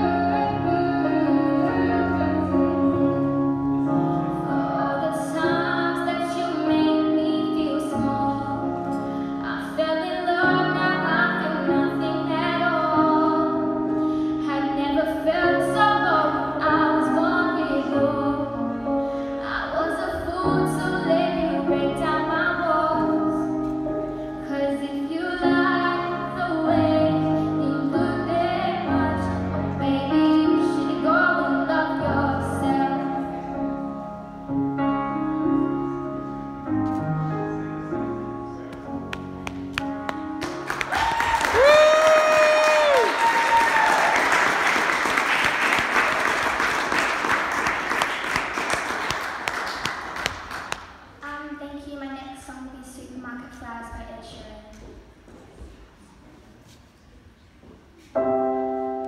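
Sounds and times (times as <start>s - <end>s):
girl singing into a microphone: 0.0s - 3.4s, 4.3s - 33.8s.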